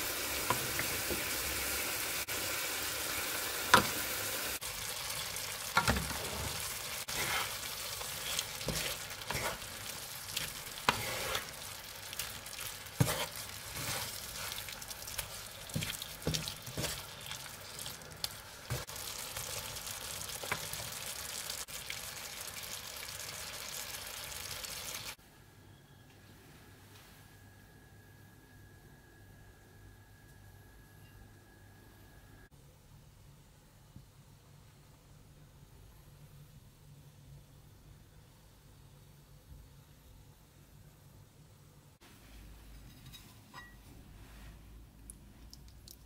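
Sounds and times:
meat sauce sizzling in frying pan: 0.0s - 25.2s
wooden spatula scraping a pan: 5.8s - 11.8s, 12.6s - 18.0s.

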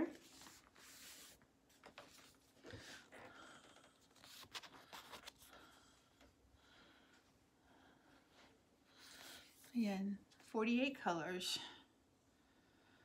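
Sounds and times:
paper rustling: 0.0s - 3.1s, 4.0s - 5.7s.

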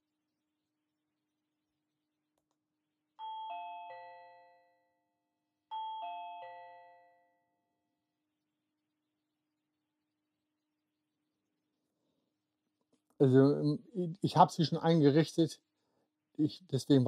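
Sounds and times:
descending doorbell chime: 3.2s - 5.0s, 5.7s - 7.5s.

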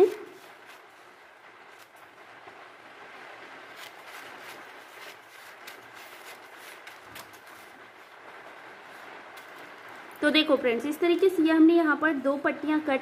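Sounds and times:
paper crinkling: 3.7s - 8.2s.

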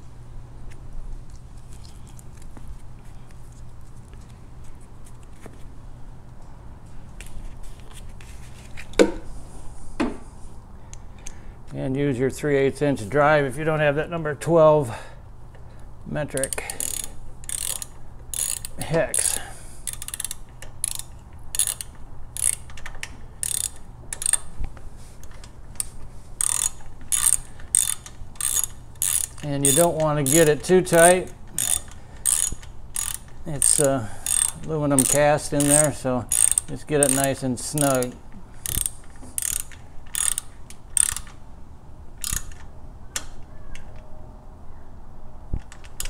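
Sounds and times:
socket ratchet clicking: 16.3s - 24.5s, 26.4s - 41.4s, 42.2s - 43.3s.

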